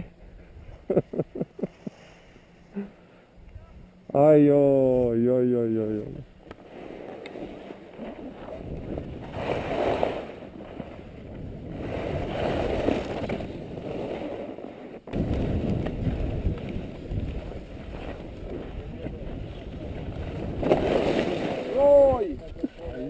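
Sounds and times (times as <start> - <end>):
skis scraping over snow: 5.7 - 23.0
wind rushing over microphone: 8.3 - 14.4, 15.0 - 23.0.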